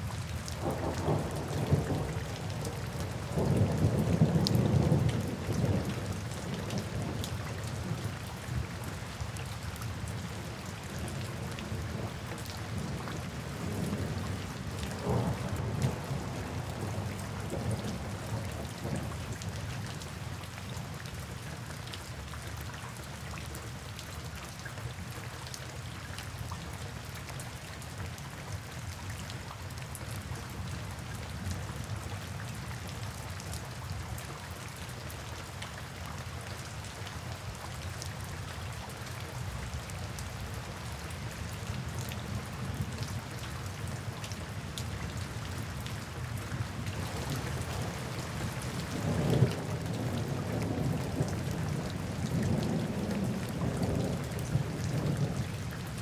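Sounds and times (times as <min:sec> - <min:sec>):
rain drops ticking: 0:00.0 - 0:56.0.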